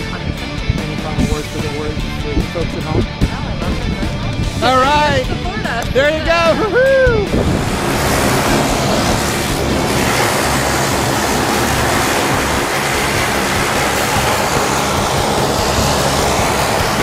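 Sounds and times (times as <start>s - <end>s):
aircraft engine and propeller drone: 0.0s - 17.0s
rushing noise: 6.0s - 17.0s.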